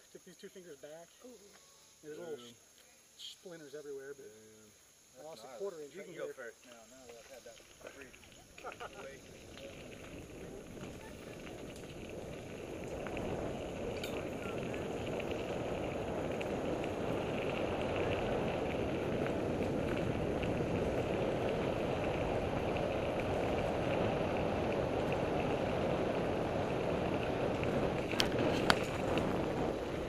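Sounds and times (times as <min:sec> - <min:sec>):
bike tyre noise on dirt: 0:06.7 - 0:30.0
wind rush: 0:09.2 - 0:30.0.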